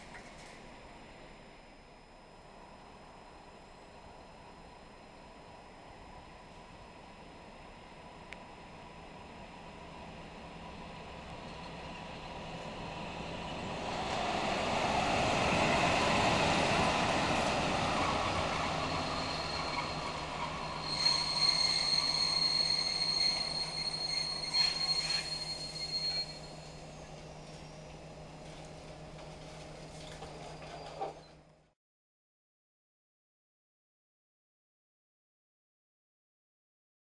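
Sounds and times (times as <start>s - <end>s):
locomotive engine passing: 10.6s - 23.7s
wheels clanking on rails: 15.5s - 27.7s
high wheel squeal: 16.7s - 27.9s, 30.2s - 31.4s.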